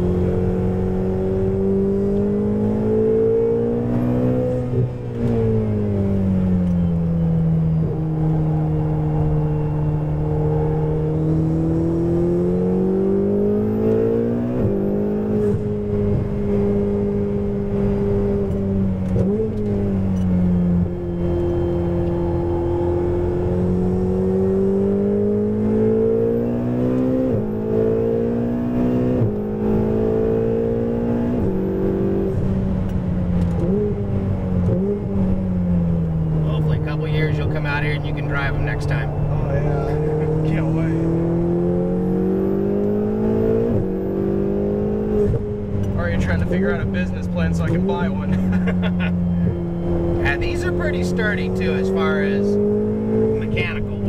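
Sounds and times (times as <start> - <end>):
car engine at racing speed: 0.0 - 54.0.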